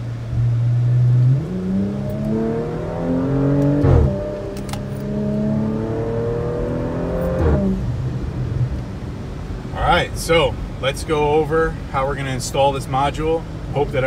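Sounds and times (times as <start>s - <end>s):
car engine accelerating hard: 0.0s - 9.1s.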